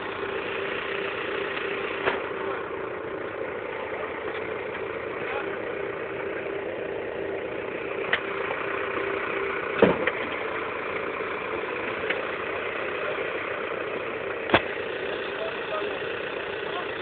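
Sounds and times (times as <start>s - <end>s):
tractor diesel engine idling: 0.0s - 17.0s
short thump: 9.8s - 10.2s.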